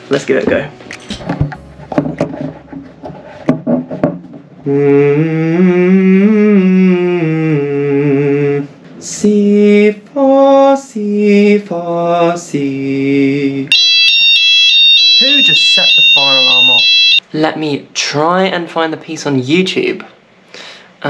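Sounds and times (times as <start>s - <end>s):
small knocks and rustling: 0.4s - 4.5s.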